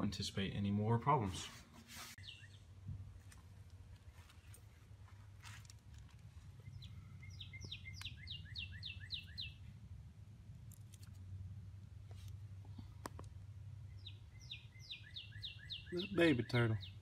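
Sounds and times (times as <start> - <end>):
songbird singing: 2.2 - 3.0, 6.0 - 9.9, 12.7 - 17.0.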